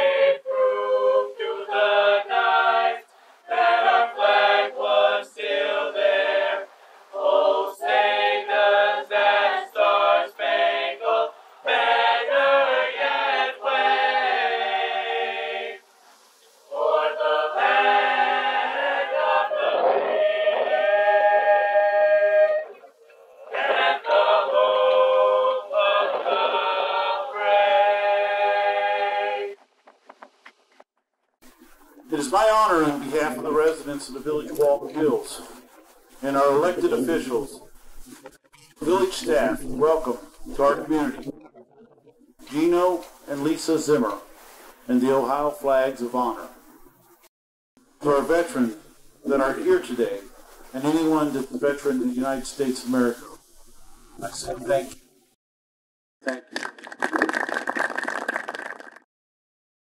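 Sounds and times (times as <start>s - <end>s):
choir singing a cappella: 0.0s - 15.9s, 16.6s - 29.6s, 32.1s - 37.6s, 38.8s - 41.4s.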